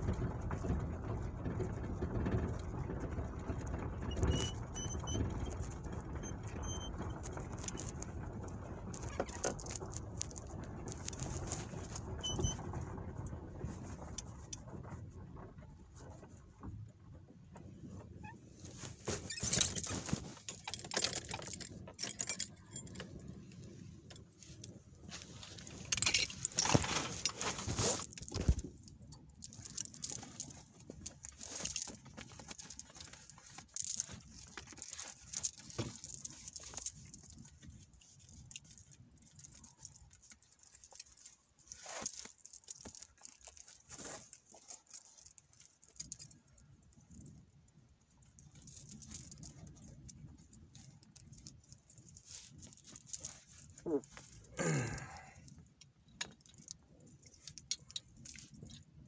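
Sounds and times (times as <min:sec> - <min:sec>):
small loose objects rattling: 0:00.0 - 0:14.8, 0:18.7 - 0:23.5, 0:24.1 - 0:47.4, 0:48.1 - 0:59.0.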